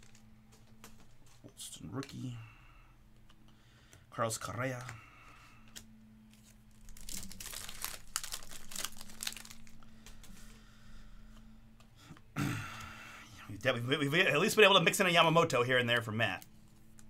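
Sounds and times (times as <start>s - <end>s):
wrapper crinkling and tearing: 5.7s - 10.2s.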